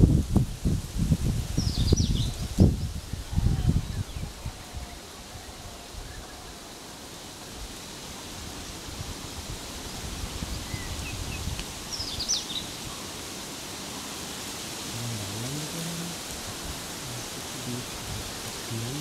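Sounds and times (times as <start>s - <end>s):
steady noisy hiss: 0.0s - 19.0s.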